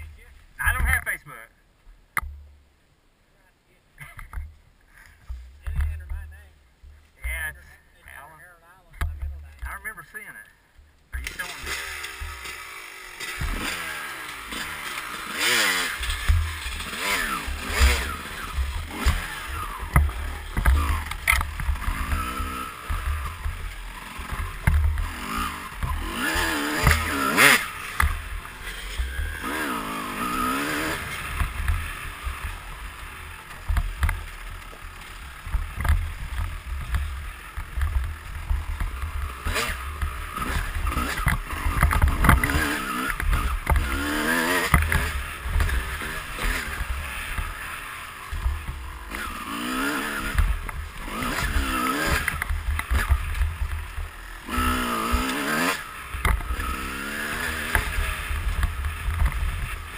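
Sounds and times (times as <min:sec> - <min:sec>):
dirt bike engine revving: 0:11.2 - 0:59.9.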